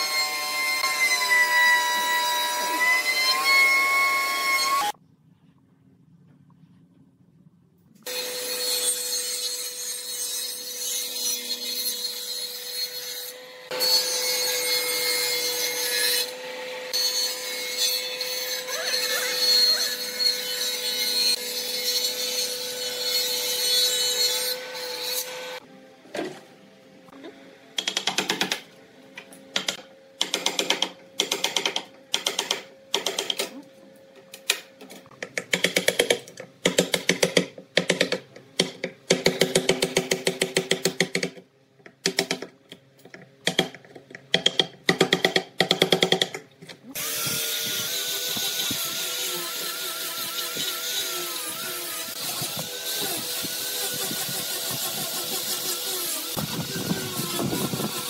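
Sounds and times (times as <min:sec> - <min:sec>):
table saw cutting wood: 0:00.0 - 0:05.0, 0:08.1 - 0:25.7, 0:46.9 - 0:58.0.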